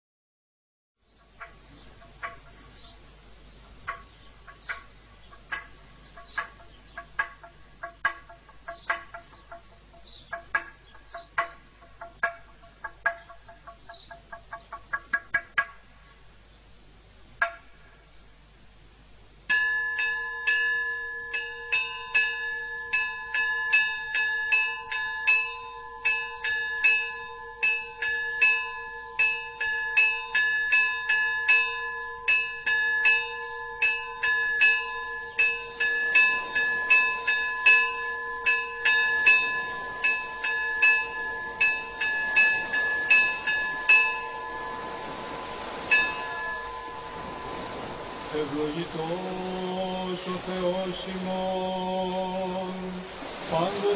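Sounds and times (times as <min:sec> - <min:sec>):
church bells chiming: 0:19.5 - 0:51.0.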